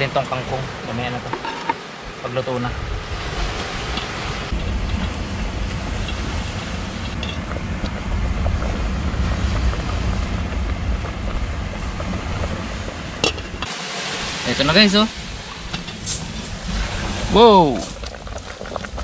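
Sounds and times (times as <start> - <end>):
wind buffeting microphone: 2.0 - 13.7.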